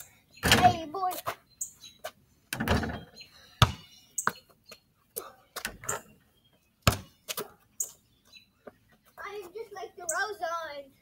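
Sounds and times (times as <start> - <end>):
basketball bouncing off rim and ground: 0.4 - 0.9, 2.5 - 4.4, 6.8 - 7.6.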